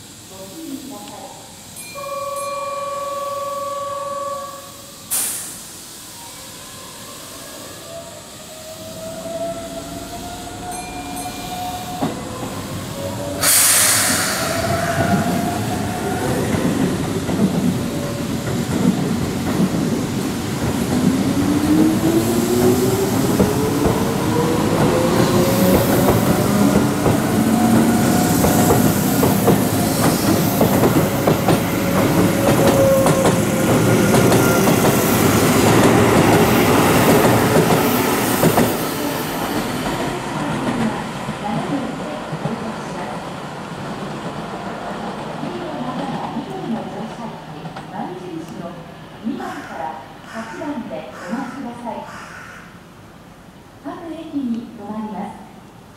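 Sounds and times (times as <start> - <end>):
air hiss: 4.5 - 10.7, 11.4 - 39.6
train wheels clattering and squealing: 9.3 - 21.9, 22.6 - 41.0.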